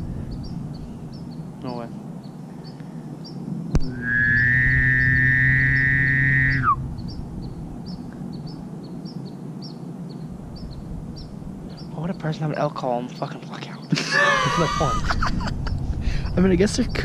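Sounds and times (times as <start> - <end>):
elk call whistle: 3.9 - 6.8.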